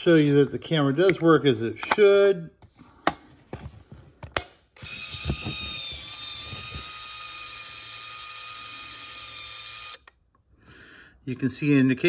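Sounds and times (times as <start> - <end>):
camera motor drive whine: 4.8 - 10.2.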